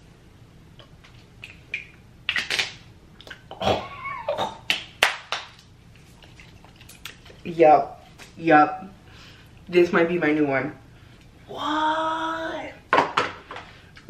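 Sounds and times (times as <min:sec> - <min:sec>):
woman saying ooh: 0:11.5 - 0:12.8.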